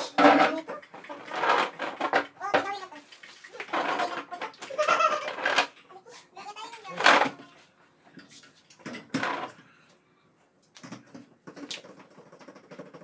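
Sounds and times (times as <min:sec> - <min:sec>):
short knocks and clatters: 0:00.0 - 0:02.9, 0:03.6 - 0:05.8, 0:10.8 - 0:13.0.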